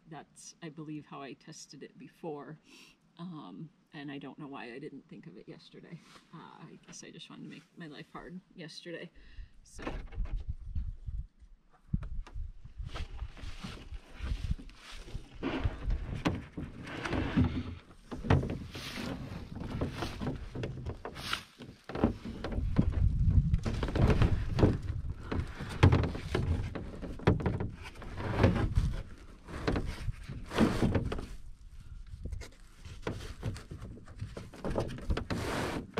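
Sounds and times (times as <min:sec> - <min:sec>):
knocks and scrapes against canoe hull: 0:11.7 - 0:35.9
rustling of gear and straps: 0:11.8 - 0:35.9.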